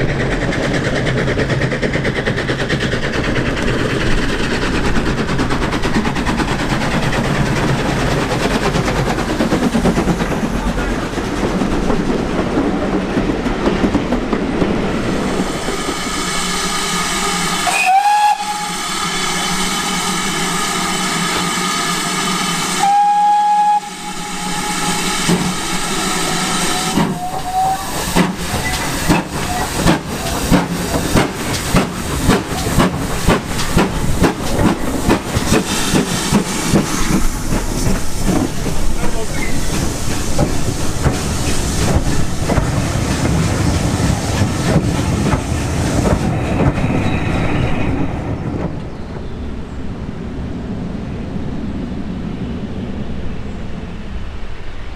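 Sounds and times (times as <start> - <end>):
locomotive exhaust beats: 0.0 - 47.2
train rumbling: 0.0 - 54.9
steam hissing: 14.9 - 48.1
steam whistle blasts: 16.5 - 25.4, 26.4 - 28.0.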